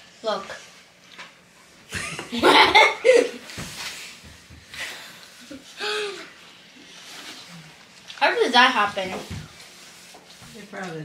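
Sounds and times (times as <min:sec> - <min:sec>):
children laughing: 0:01.9 - 0:03.5.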